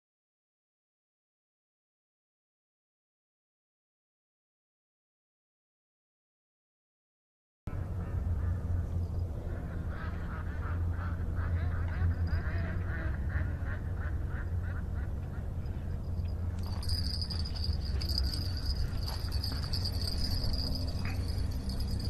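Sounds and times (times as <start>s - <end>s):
steady low rumble: 7.7s - 22.0s.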